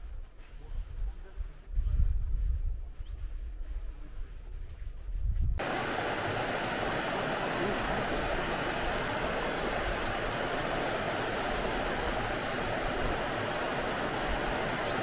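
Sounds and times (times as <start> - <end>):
river water rushing over rocks: 5.6 - 15.0.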